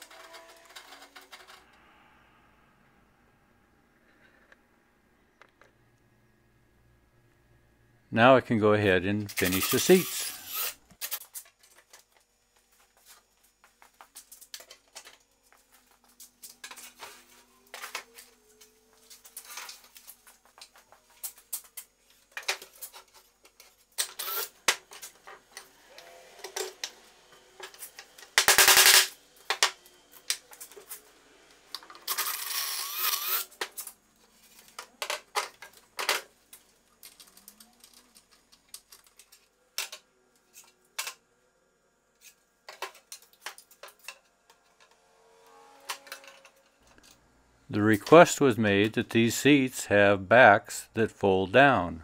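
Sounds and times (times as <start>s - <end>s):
cordless drill driving screws: 9.4s - 11.2s, 24.0s - 24.6s, 32.1s - 33.5s.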